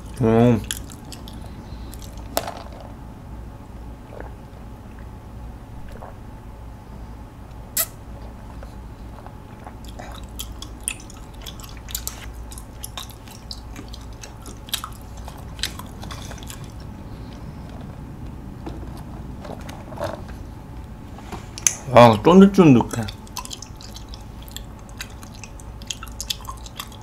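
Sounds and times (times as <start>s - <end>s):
person chewing tapioca pearls: 0.0s - 2.5s, 7.8s - 20.5s, 22.8s - 27.0s
wet mouth clicks and smacks: 0.1s - 2.3s, 7.8s - 8.0s, 9.8s - 16.8s, 23.1s - 27.0s.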